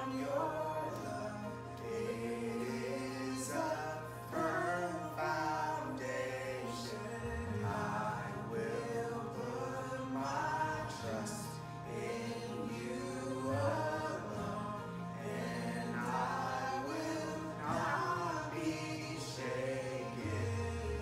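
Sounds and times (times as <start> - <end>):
voices singing worship song: 0.0 - 21.0
backing track with bass: 7.0 - 8.5.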